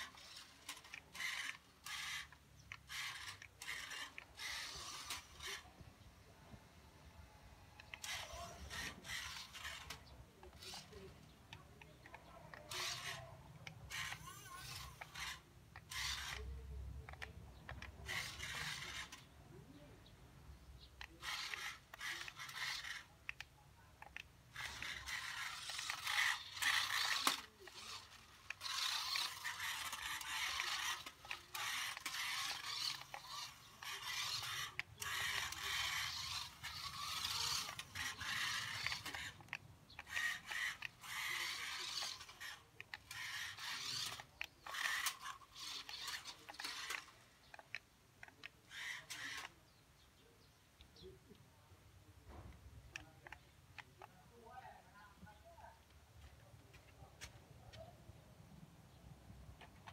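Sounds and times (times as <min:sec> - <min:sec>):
toy car electric motor whirring: 0:00.0 - 0:05.8, 0:07.5 - 0:19.9, 0:20.8 - 0:49.7, 0:52.9 - 0:54.2, 0:59.6 - 0:59.9
tyres scraping over concrete: 0:07.8 - 0:19.4, 0:21.0 - 0:49.7.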